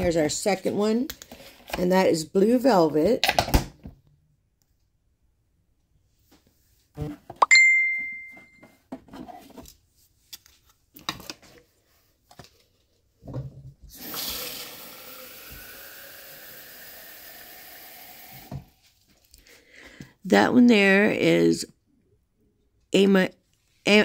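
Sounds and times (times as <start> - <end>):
bright ringing clink: 7.4 - 8.6
water running: 13.9 - 18.8.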